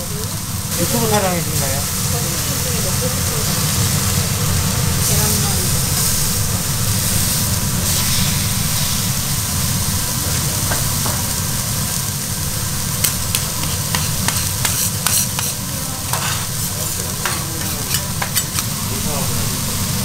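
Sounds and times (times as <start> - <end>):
beef sizzling on griddle: 0.0 - 20.0
sharp crackling pops: 10.2 - 18.9.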